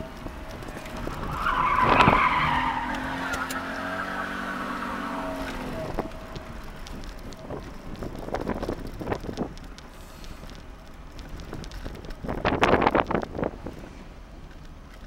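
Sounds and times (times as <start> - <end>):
tyres skidding and squealing: 0.0 - 10.3
car engine running: 0.0 - 15.0.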